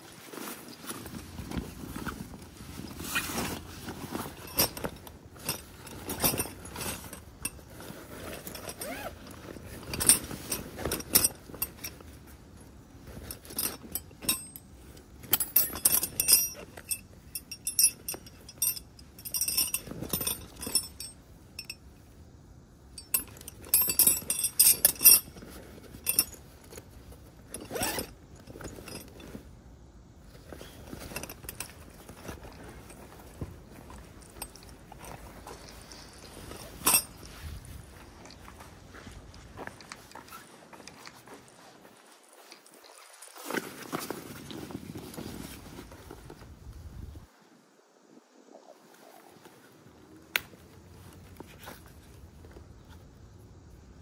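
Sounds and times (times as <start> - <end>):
fabric rustling and scraping: 0.0 - 47.8
metal gear clinking: 3.1 - 12.1, 13.1 - 21.8, 23.0 - 26.8, 30.9 - 38.6.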